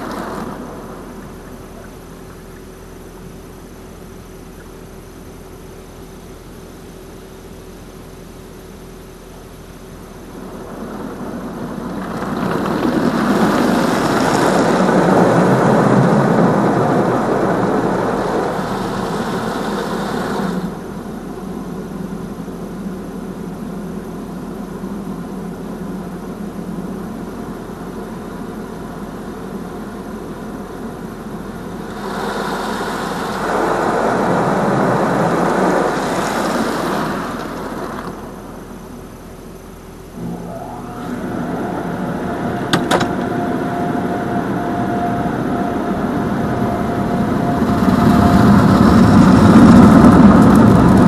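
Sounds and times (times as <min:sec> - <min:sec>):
high-pressure water jets spraying car: 0:12.8 - 0:22.2, 0:28.1 - 0:38.8.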